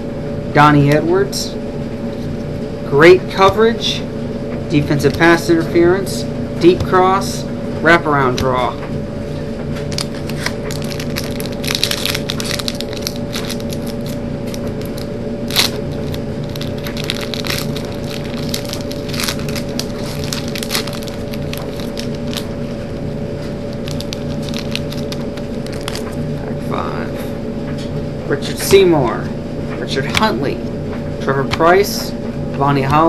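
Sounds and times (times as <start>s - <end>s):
steady room hum: 0.0s - 33.0s
wrapper crinkling and tearing: 9.8s - 22.7s, 23.7s - 26.2s.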